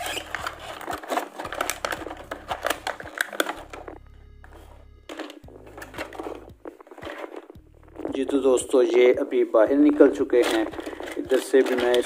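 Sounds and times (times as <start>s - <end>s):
cardboard box and plastic tray handled: 0.0s - 4.0s, 5.1s - 7.6s, 9.2s - 12.0s.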